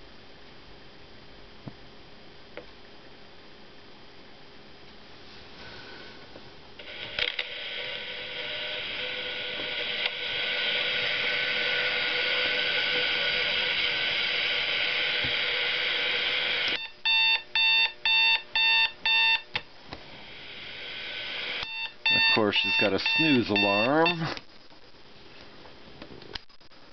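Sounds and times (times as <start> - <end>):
fm radio static: 6.8 - 17.3, 20.2 - 25.2
electronic alarm beeps: 16.8 - 19.6, 21.6 - 24.3.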